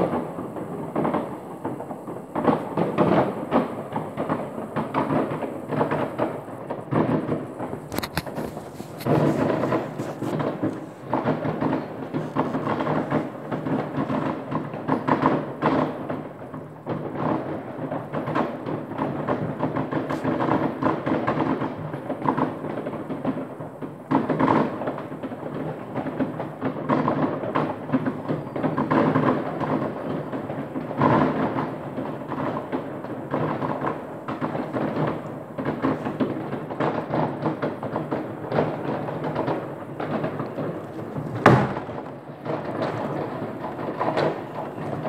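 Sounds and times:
fireworks bangs and crackling: 0:00.0 - 0:45.0.

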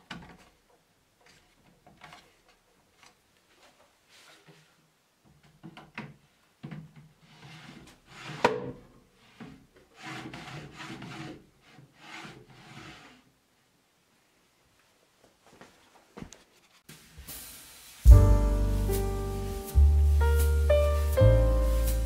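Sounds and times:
wood scraping against wood: 0:07.2 - 0:08.6, 0:09.2 - 0:13.2, 0:15.7 - 0:16.9.

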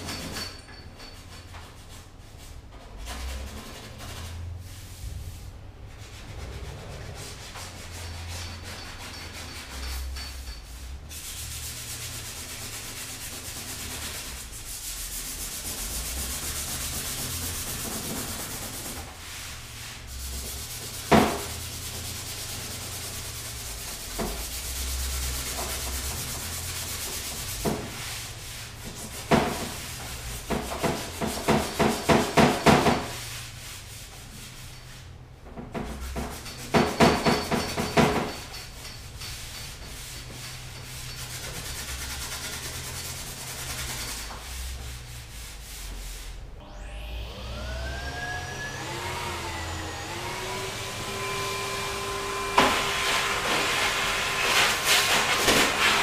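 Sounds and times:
sandpaper rubbing on panel: 0:01.6 - 0:10.1, 0:11.1 - 0:35.1, 0:35.7 - 0:38.5, 0:39.3 - 0:46.6, 0:51.2 - 0:56.0.

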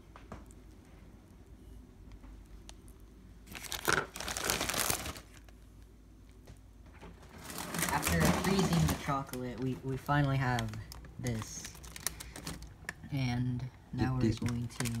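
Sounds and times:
plastic bag crinkling: 0:03.4 - 0:05.6, 0:07.2 - 0:13.0, 0:14.2 - 0:15.0.

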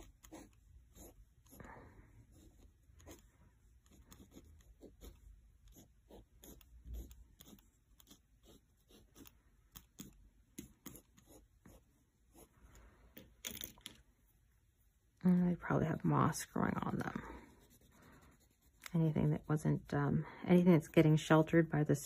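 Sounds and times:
pen scratching on paper: 0:00.0 - 0:01.6, 0:02.2 - 0:12.8, 0:17.2 - 0:19.9.

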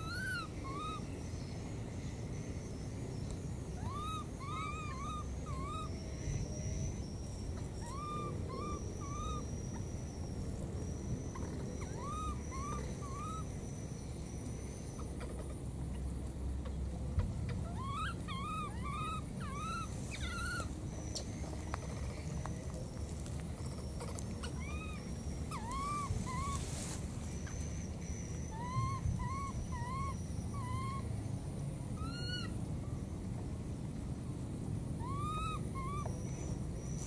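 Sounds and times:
baby monkey whistling peeps: 0:00.0 - 0:01.0, 0:03.8 - 0:13.5, 0:17.7 - 0:21.3, 0:23.8 - 0:26.7, 0:27.4 - 0:31.0, 0:35.0 - 0:36.2.

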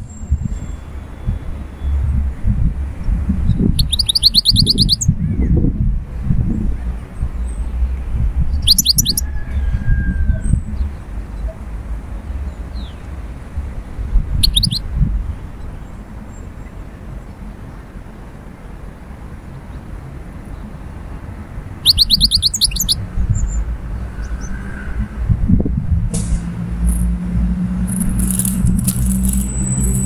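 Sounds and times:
goldfinch twittering: 0:03.8 - 0:05.1, 0:08.6 - 0:09.2, 0:14.4 - 0:14.8, 0:21.8 - 0:23.6, 0:27.9 - 0:30.0
low rumble: 0:23.0 - 0:30.0.

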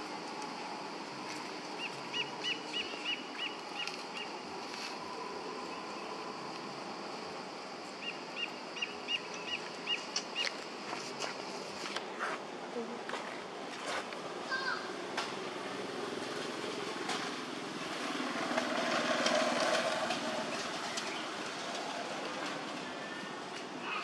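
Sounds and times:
outdoor background hiss: 0:00.0 - 0:24.0
bird chirping: 0:01.8 - 0:04.4, 0:08.0 - 0:10.6.

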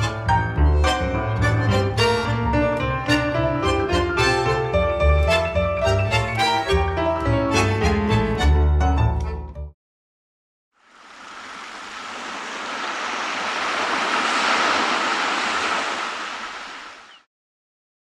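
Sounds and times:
string music: 0:00.0 - 0:09.7
ocean surf washing in: 0:10.8 - 0:17.3.

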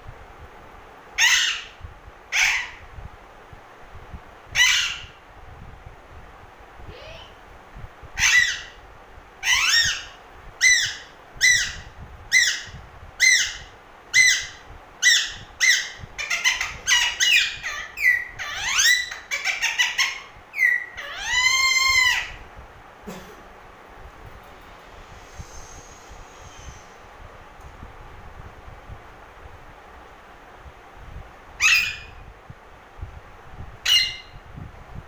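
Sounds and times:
parakeet squawking: 0:01.2 - 0:02.8, 0:04.6 - 0:05.2, 0:08.2 - 0:08.8, 0:09.4 - 0:13.6, 0:14.2 - 0:22.4, 0:31.6 - 0:32.2, 0:33.8 - 0:34.3.

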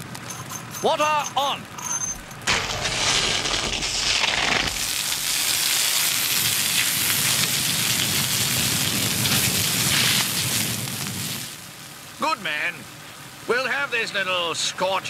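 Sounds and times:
fire hose spraying water: 0:02.5 - 0:11.9.

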